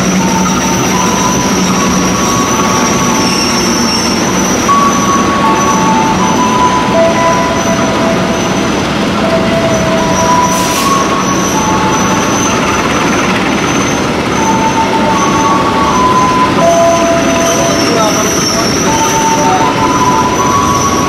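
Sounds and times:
rumble of train wheels: 0.0 - 21.0
train wheels squealing on rails: 0.0 - 21.0.

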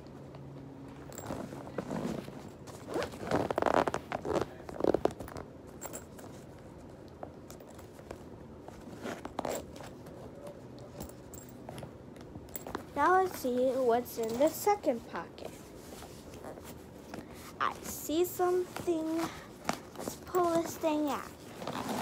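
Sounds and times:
handling noise of packing: 0.0 - 22.0
backpack zipper pulled: 1.2 - 5.2, 21.4 - 22.0.

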